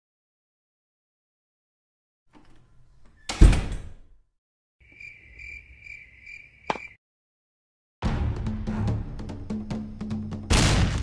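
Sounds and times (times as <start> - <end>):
cricket chirping: 4.8 - 7.0
action music with percussive hits: 8.0 - 11.0.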